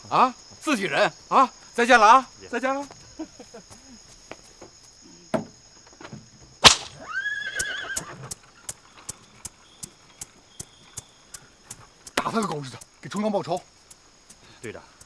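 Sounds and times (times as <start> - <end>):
high insect drone: 0.0 - 15.0
horse whinnying: 6.7 - 8.3.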